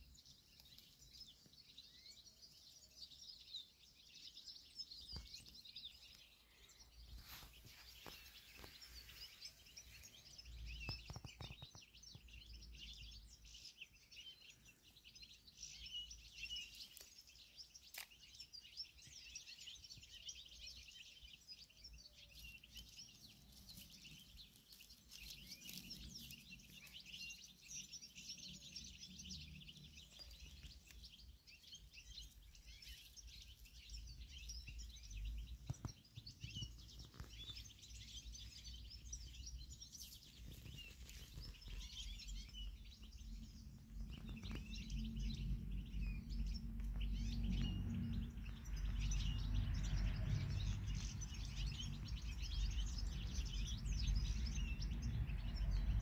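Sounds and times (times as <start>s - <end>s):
small birds chirping: 0.0s - 56.0s
low rumble: 40.8s - 56.0s.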